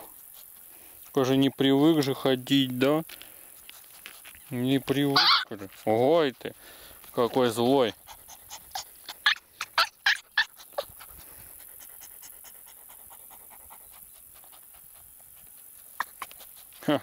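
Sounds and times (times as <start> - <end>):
puppy panting: 0.0 - 17.0.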